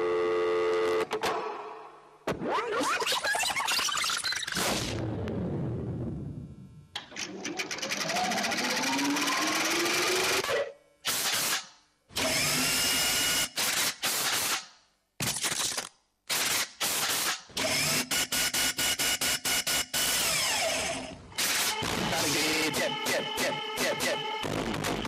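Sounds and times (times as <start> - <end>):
harsh electronic noise bursts: 7.5 - 14.6, 15.2 - 25.0.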